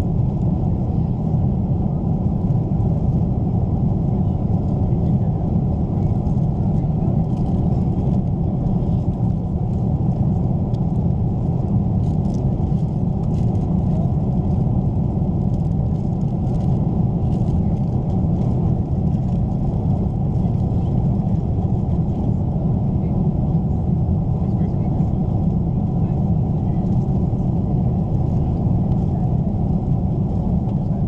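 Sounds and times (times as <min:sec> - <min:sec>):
airplane cabin rumble: 0:00.0 - 0:31.0.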